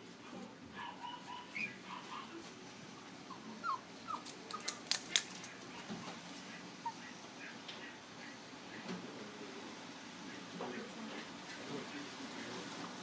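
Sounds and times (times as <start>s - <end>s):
puppy whimpering: 0.8s - 2.4s, 3.2s - 4.7s.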